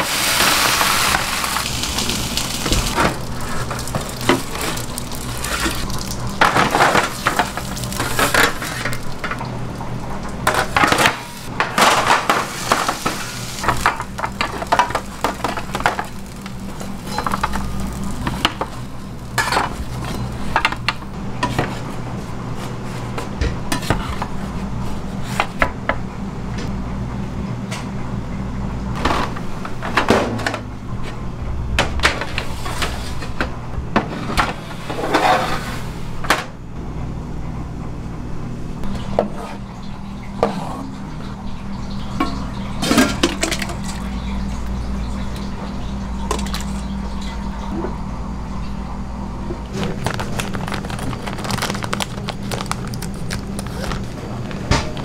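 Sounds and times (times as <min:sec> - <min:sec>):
steady low hum: 0:00.7 - 0:55.0
metal pans clattering: 0:42.2 - 0:44.0.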